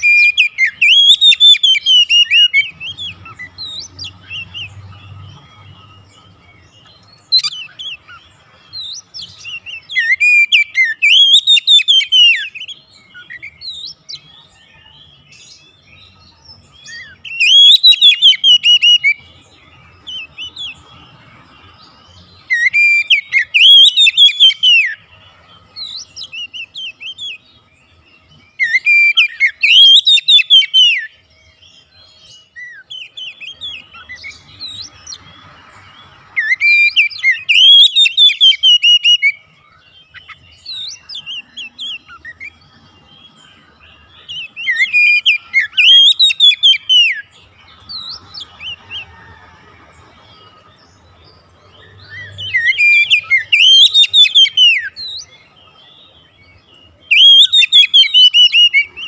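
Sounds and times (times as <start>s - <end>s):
bird whistled song: 0.0s - 59.0s
soft bird chirps: 0.0s - 59.0s.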